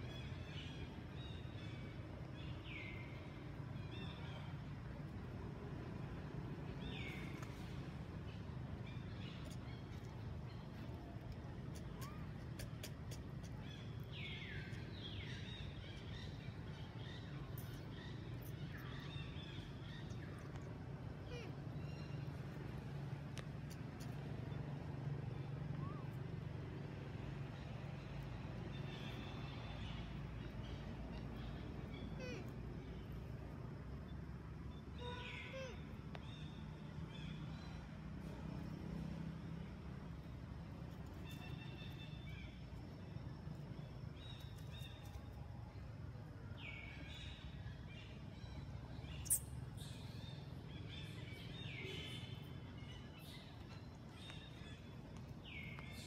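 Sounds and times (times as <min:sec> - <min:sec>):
faint outdoor background noise: 0:00.0 - 0:56.0
high-pitched chirping calls: 0:49.0 - 0:53.6.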